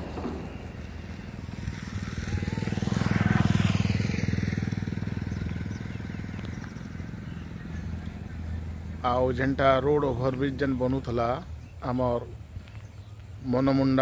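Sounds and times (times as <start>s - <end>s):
vehicle engine passing by: 0.0s - 11.1s.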